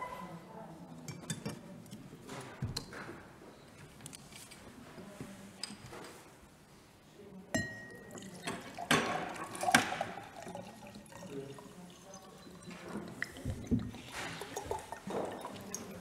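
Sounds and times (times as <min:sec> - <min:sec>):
drinking glass clinking: 0:07.6 - 0:16.0
water poured into glass: 0:07.8 - 0:16.0.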